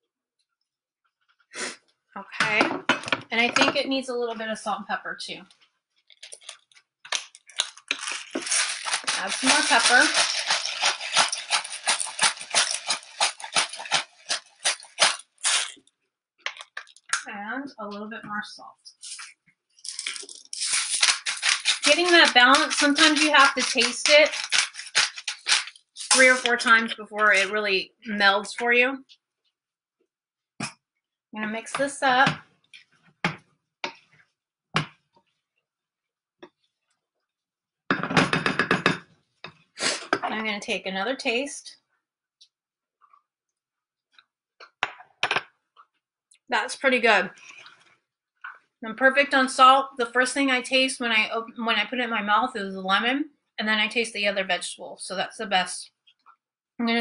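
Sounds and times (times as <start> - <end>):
pepper mill grinding: 6.2 - 15.8, 19.0 - 27.5.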